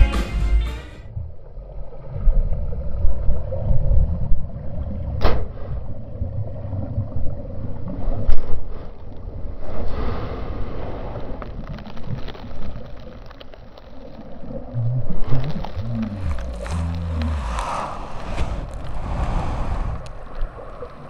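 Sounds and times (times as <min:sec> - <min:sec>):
muffled camera rumbling and rubbing: 0:15.3 - 0:20.8.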